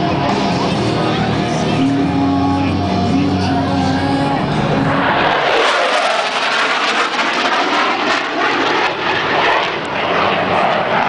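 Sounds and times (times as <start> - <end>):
fighter jet flying past: 4.4 - 11.0.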